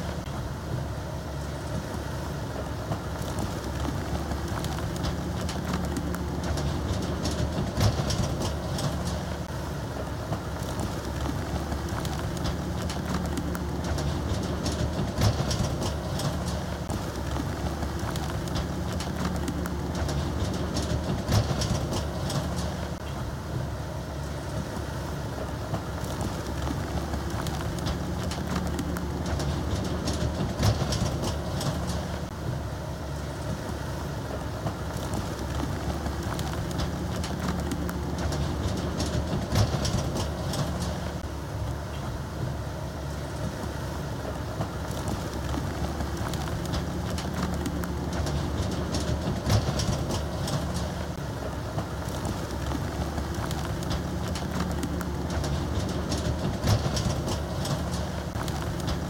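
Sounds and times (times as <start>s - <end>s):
bulldozer diesel engine running: 0.0s - 59.0s
metallic clatter: 3.3s - 9.6s, 10.3s - 23.1s, 26.3s - 32.4s, 35.0s - 41.3s, 45.0s - 59.0s.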